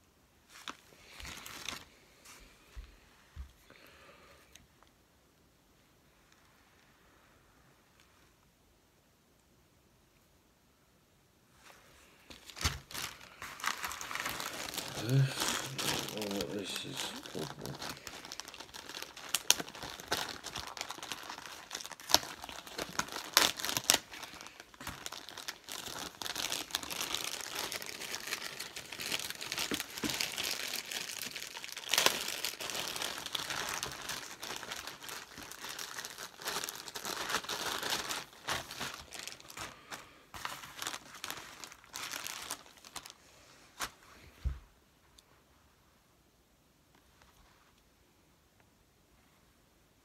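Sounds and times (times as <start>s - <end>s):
plastic bag crinkling: 0.5s - 2.0s, 12.3s - 44.0s.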